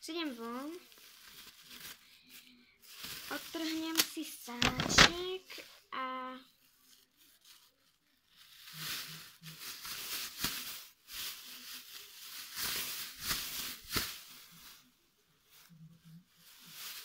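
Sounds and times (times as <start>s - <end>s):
plastic bag rustling: 0.1s - 5.8s, 6.6s - 17.0s
plastic film snapping: 3.8s - 5.3s.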